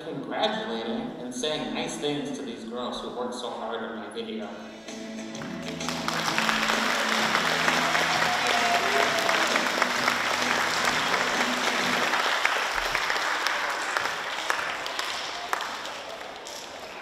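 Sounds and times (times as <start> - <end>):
children clapping: 5.3 - 17.0.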